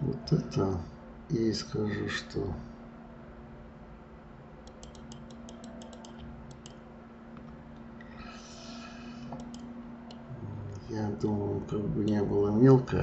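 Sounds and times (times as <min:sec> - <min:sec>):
faint steady hum: 0:00.0 - 0:13.0
keyboard key clicks: 0:04.7 - 0:06.8.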